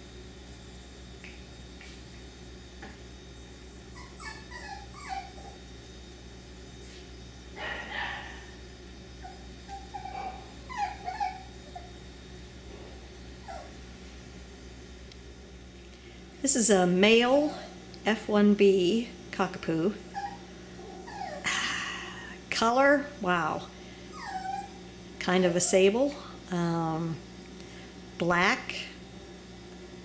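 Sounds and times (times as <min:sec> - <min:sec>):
puppies whimpering and yipping: 0:03.4 - 0:05.6, 0:09.2 - 0:12.0, 0:13.4 - 0:13.7, 0:20.0 - 0:21.5, 0:24.1 - 0:24.9.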